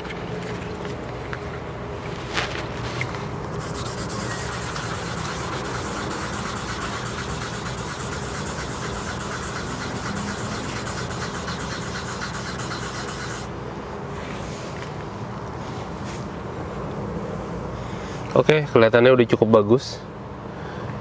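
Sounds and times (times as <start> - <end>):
steady low hum: 0.0 - 16.6
sandpaper rubbing on paint: 3.6 - 13.5.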